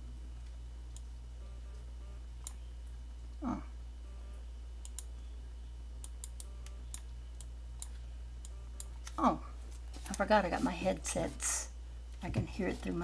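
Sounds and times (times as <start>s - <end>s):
steady low hum: 0.0s - 13.0s
computer mouse clicks: 4.8s - 5.1s.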